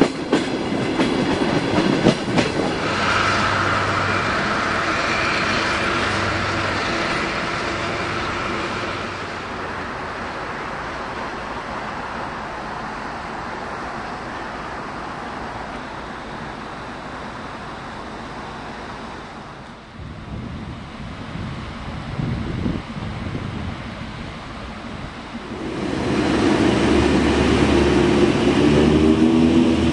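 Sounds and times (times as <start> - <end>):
train diesel engine humming: 0.0 - 29.9
low rumble: 25.4 - 29.9.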